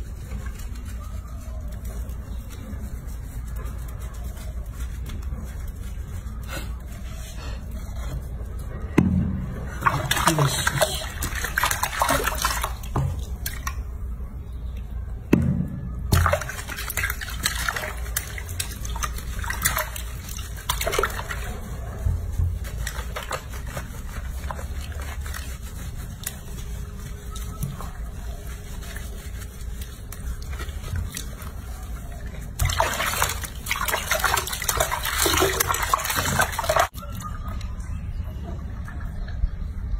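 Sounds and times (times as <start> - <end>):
water sloshing and splashing: 9.5 - 14.0, 16.1 - 37.2.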